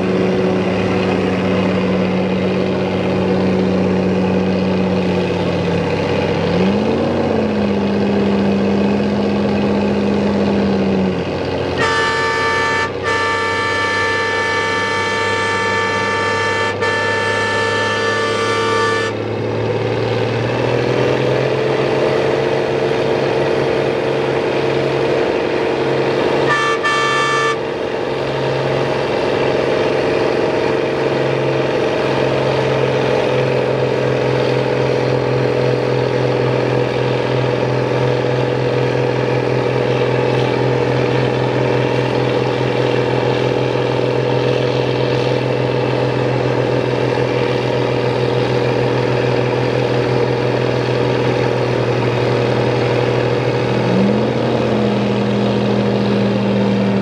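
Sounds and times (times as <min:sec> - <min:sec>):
low engine tone: 0:00.0 - 0:57.0
truck engines running under load: 0:00.0 - 0:57.0
high horn-like tone: 0:11.8 - 0:19.3, 0:26.4 - 0:27.8.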